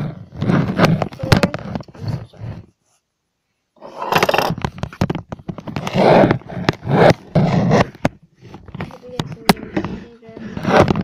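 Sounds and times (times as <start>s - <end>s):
scraping and rubbing: 0.0s - 3.0s, 3.8s - 11.0s
sharp clicks and knocks: 4.1s - 10.0s.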